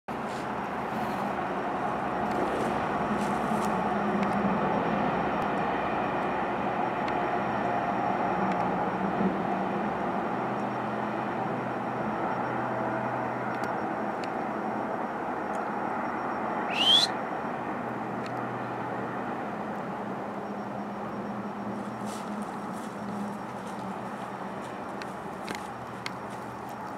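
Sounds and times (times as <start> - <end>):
short rising squeak: 16.7 - 17.1
faint ticks: 21.8 - 26.9.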